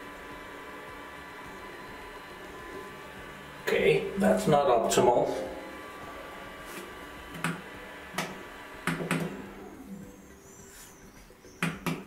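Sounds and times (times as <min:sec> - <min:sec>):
equipment knocks and clicks: 0:08.2 - 0:09.3.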